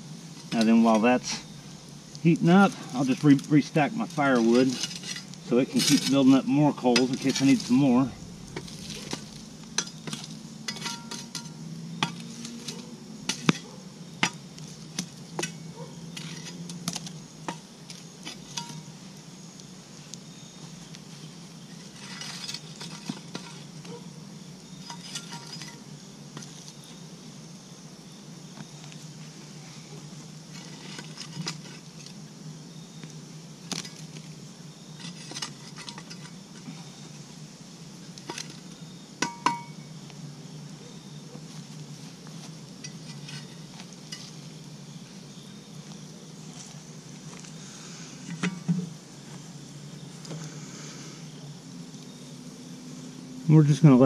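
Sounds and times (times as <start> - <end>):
campfire crackling: 0.0 - 53.2
logs clinking and knocking: 39.2 - 39.8.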